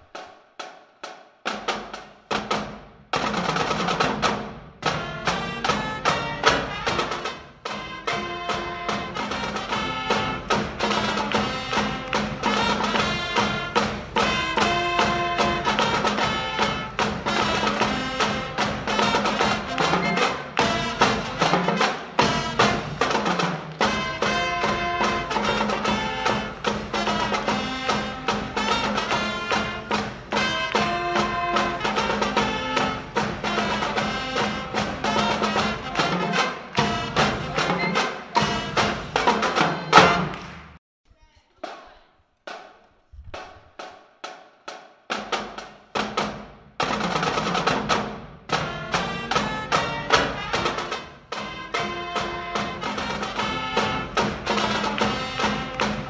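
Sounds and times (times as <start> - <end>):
marching band playing: 0.0 - 40.8, 43.8 - 56.0.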